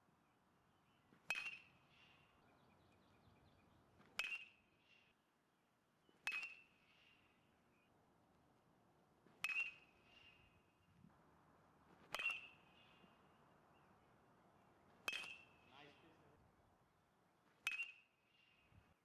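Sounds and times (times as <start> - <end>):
metal bat pinging balls: 1.2 - 1.8, 4.0 - 4.6, 6.2 - 6.7, 9.4 - 10.0, 12.0 - 12.6, 15.0 - 15.7, 17.6 - 18.1.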